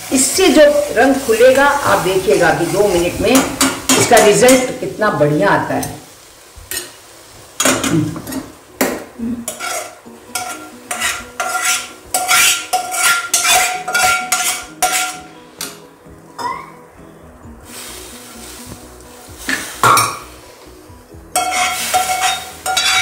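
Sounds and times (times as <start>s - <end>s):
metal spoon scraping a pot: 9.5s - 15.7s, 21.4s - 23.0s.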